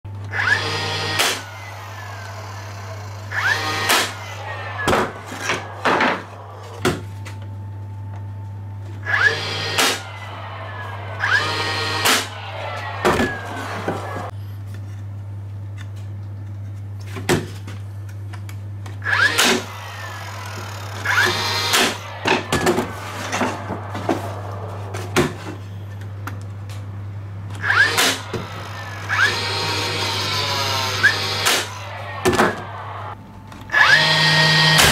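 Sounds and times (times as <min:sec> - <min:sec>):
steady low hum: 0:00.1 - 0:33.7
nail gun firing: 0:01.1 - 0:01.4, 0:09.7 - 0:10.0, 0:19.2 - 0:19.7, 0:27.7 - 0:28.4, 0:31.1 - 0:32.5.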